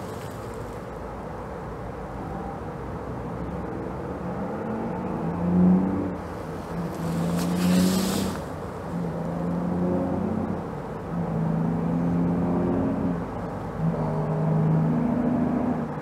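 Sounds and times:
low engine-like drone: 0.0s - 16.0s
rush of hiss: 7.0s - 8.6s.

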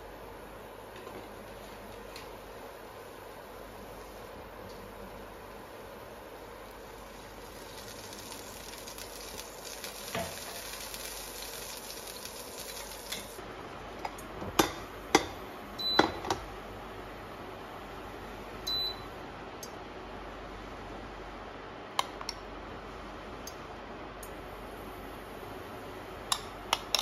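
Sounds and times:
water pouring: 7.4s - 13.4s.

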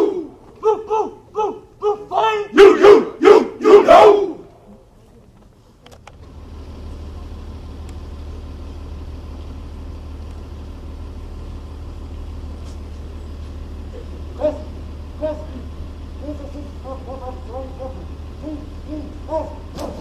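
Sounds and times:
steady low rumble: 4.3s - 20.0s.

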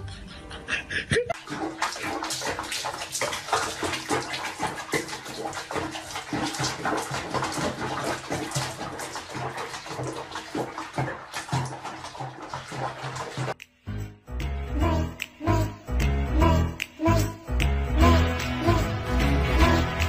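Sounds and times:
water splashing in a tub: 1.3s - 13.6s.

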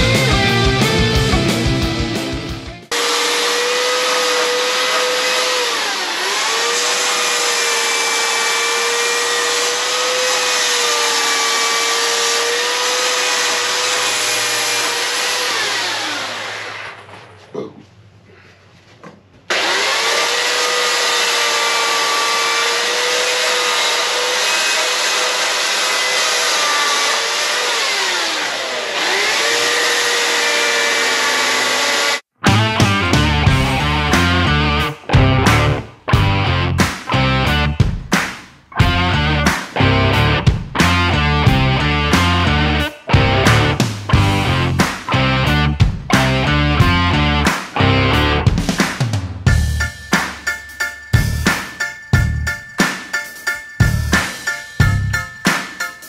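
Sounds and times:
electric chainsaw cutting wood: 0.0s - 17.2s, 19.5s - 32.3s, 33.1s - 37.7s, 38.8s - 48.4s.

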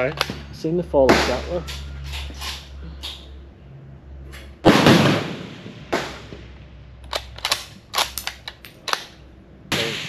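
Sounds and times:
rifle shot with ringing tail: 4.6s - 6.4s
rifle bolt metallic clicks: 7.0s - 9.2s.

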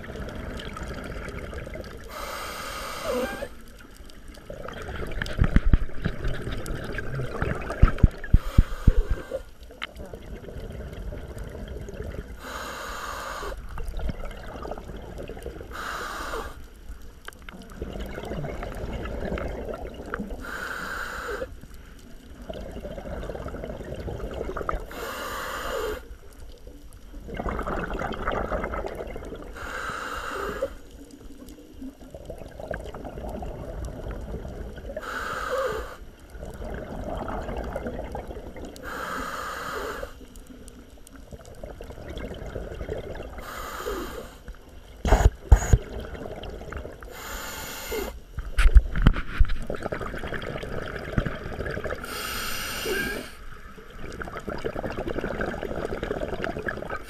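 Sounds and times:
bubbling exhale underwater: 0.0s - 16.6s, 17.5s - 26.1s, 27.1s - 57.0s
hissing regulator inhale: 2.0s - 3.6s, 8.3s - 9.6s, 12.4s - 13.7s, 15.7s - 16.7s, 20.4s - 21.6s, 24.9s - 26.1s, 29.5s - 30.9s, 35.0s - 36.1s, 38.8s - 40.3s, 43.4s - 45.8s, 47.1s - 48.2s, 52.0s - 53.5s.

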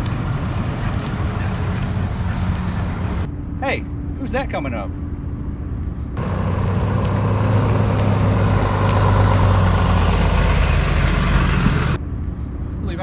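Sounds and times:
truck engine driving past: 6.2s - 12.0s.

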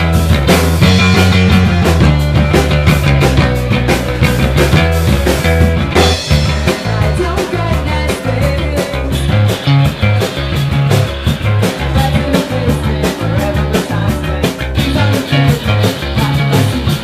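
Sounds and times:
amplified electric guitar: 0.0s - 17.0s
drum hits: 0.0s - 17.0s
heavy bass line: 0.0s - 17.0s.

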